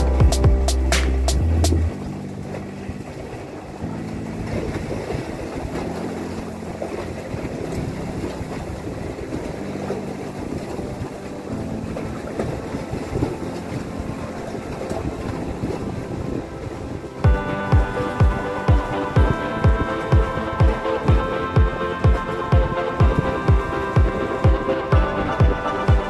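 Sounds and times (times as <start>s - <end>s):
low steady hum: 0.0s - 9.2s, 17.2s - 26.0s
waves washing against concrete: 0.0s - 26.0s
wind on microphone: 0.0s - 26.0s.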